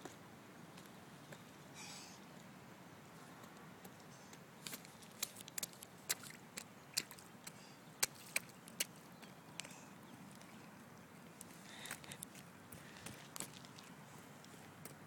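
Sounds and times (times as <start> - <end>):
rubber boots splashing in puddles: 4.6 - 9.1.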